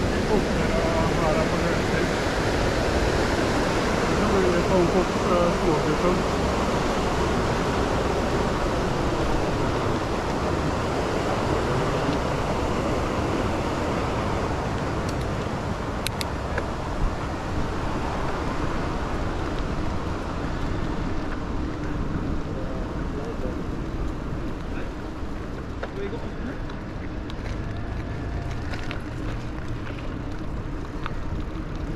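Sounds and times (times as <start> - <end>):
bicycle tyres on pavement: 0.0 - 31.9.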